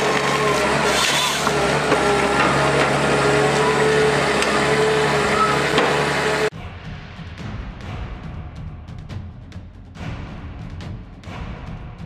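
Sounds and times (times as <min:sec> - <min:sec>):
harvester engine and hydraulics whine: 0:00.0 - 0:06.5.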